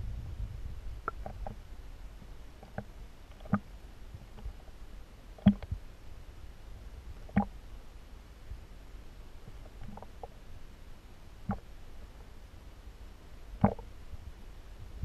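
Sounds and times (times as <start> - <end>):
muffled underwater rumble: 0.0 - 5.9, 13.4 - 15.0.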